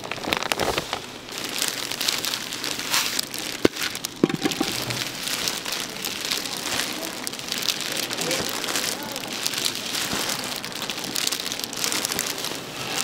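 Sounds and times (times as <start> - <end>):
plastic gloves crinkling: 0.0 - 13.0
tuna flakes rustling: 0.0 - 13.0.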